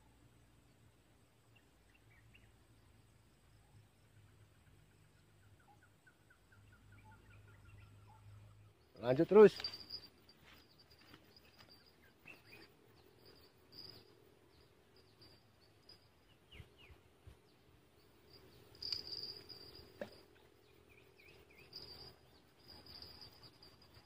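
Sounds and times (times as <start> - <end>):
faint bird chirps: 1.4 - 24.0
insect chirring: 6.5 - 24.0.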